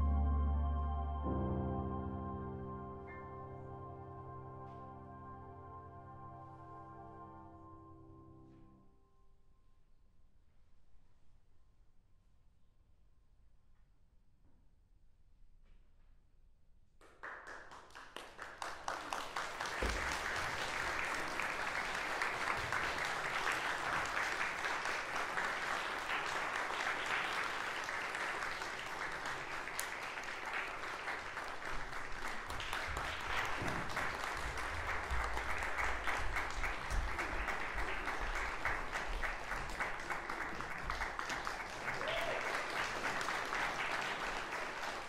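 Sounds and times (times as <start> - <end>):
audience applause: 17.2 - 45.0.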